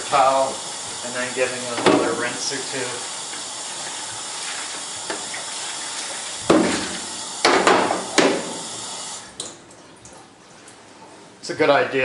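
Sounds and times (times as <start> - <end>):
water running into steel sink: 0.0 - 10.2
loud water splashes: 3.6 - 9.4.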